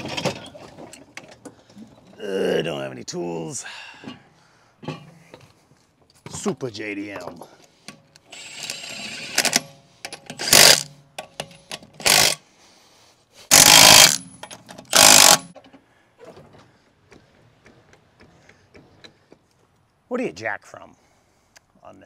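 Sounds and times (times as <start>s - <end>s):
impact wrench bursts: 10.4s - 10.9s, 11.6s - 12.4s, 13.5s - 15.6s.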